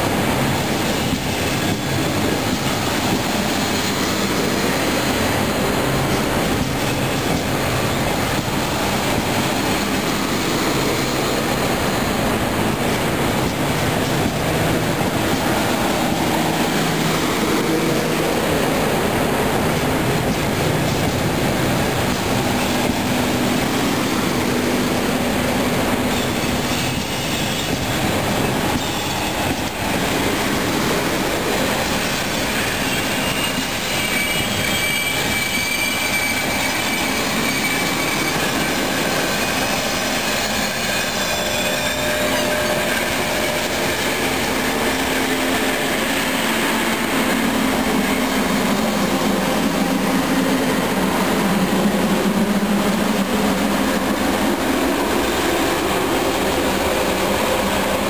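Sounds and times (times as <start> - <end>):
train wheels rumbling on rail: 0.0 - 58.0
high wheel squeal: 0.6 - 58.0.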